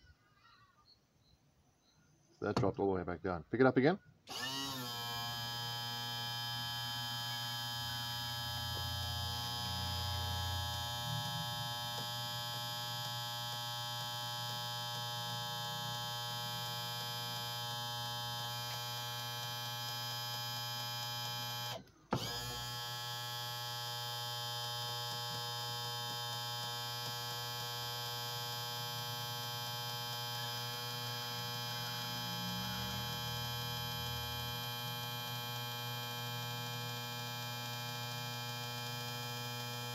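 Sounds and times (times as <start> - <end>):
motor starting click: 4.3 - 12.2, 21.3 - 23.2
electric pump motor humming: 4.3 - 39.9.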